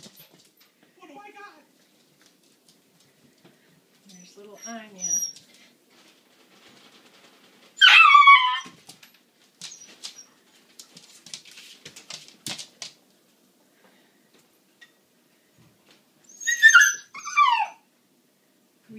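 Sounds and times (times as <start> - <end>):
puppy whine-howl: 7.8 - 8.8, 16.3 - 17.8.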